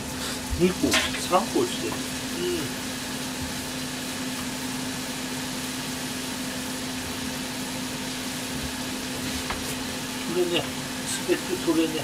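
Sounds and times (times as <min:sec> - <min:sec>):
gas stove hiss: 0:00.0 - 0:12.0.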